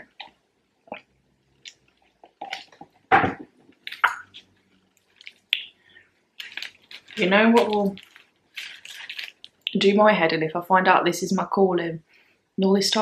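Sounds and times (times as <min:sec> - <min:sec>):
person chewing: 0:03.7 - 0:09.8.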